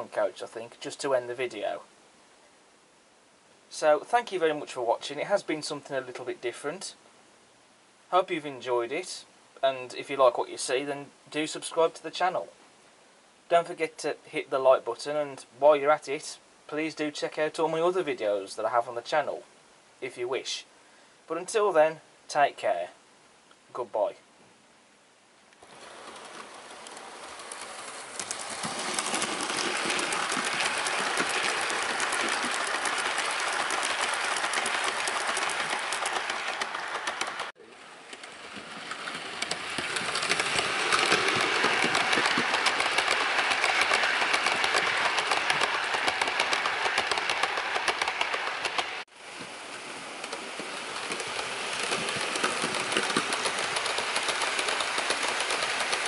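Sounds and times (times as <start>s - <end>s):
model train motor whirring: 25.6s - 49.0s, 50.2s - 56.0s
wheels clattering on rail: 25.6s - 56.0s.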